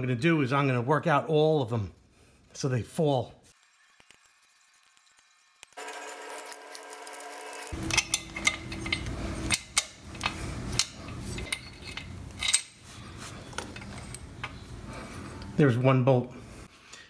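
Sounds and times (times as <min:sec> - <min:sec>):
metal clinks and scraping: 0:03.5 - 0:15.5.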